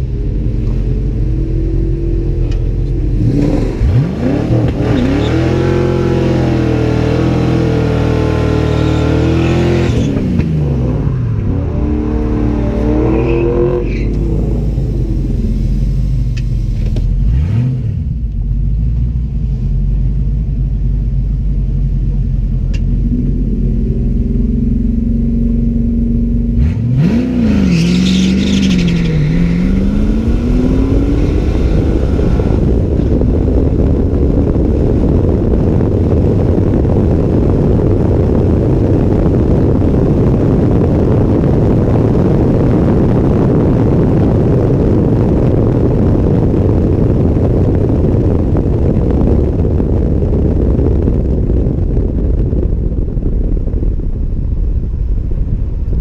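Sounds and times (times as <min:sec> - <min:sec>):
car engine revving and shifting: 0:00.0 - 0:18.4, 0:22.7 - 0:38.8
road noise: 0:00.0 - 0:56.0
wind rush on microphone: 0:00.0 - 0:56.0.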